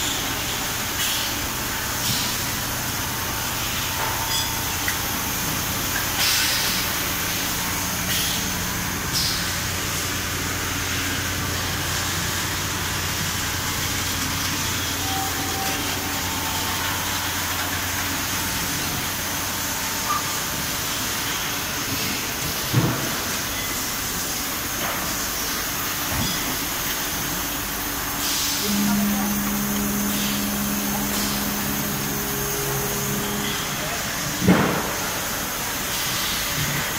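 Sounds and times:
machine hiss: 0:00.0 - 0:36.9
steady machine hum: 0:00.0 - 0:36.9
low hum: 0:28.0 - 0:35.9.

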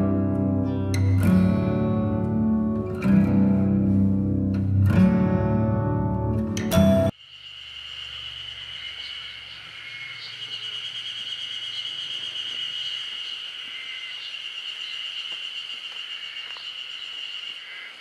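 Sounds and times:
insects shrilling: 0:07.2 - 0:18.0.

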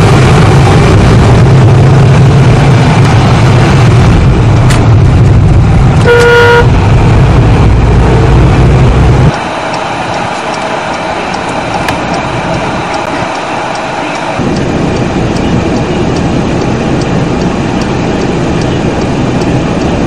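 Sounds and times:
car engine and road rumble: 0:00.0 - 0:20.0
car horn honk: 0:06.0 - 0:06.8.

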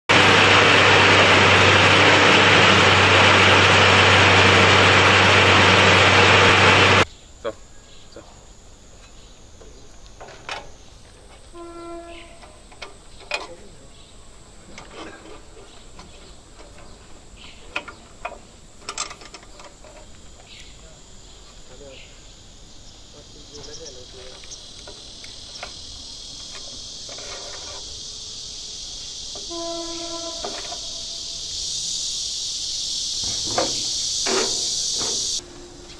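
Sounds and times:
baler machine running: 0:00.1 - 0:07.0, 0:24.1 - 0:35.9
high-pitched hiss: 0:00.1 - 0:35.9.

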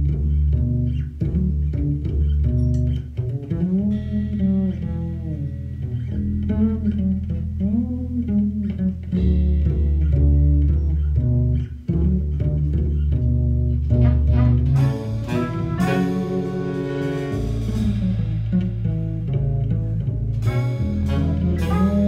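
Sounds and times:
upright bass: 0:00.0 - 0:22.0
drums: 0:09.1 - 0:22.0
trumpet: 0:13.9 - 0:18.5, 0:20.4 - 0:22.0.

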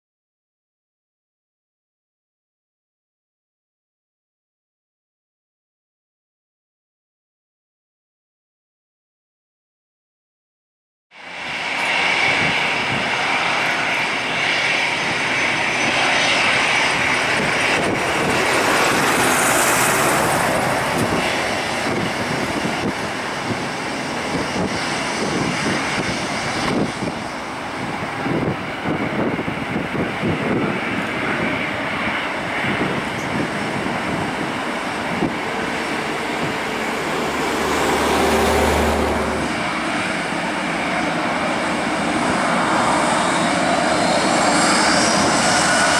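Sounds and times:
high fan whine: 0:11.2 - 0:45.9
jet engine rumble: 0:11.2 - 0:45.9.

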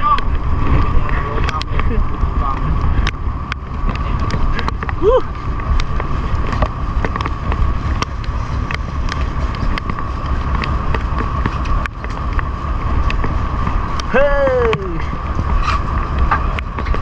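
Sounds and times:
wind rumble on microphone: 0:00.0 - 0:17.0
small clicks and knocks: 0:01.4 - 0:14.8
boat engine whining: 0:02.4 - 0:17.0.

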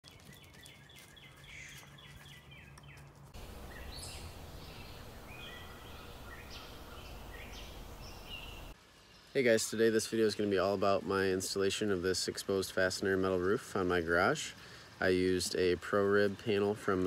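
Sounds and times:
birds chirping and calling: 0:00.1 - 0:08.8
steady background hiss: 0:03.4 - 0:17.0.

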